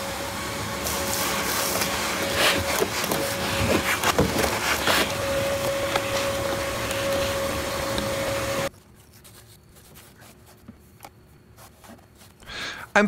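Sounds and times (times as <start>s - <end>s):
vacuum cleaner whining: 0.0s - 8.7s.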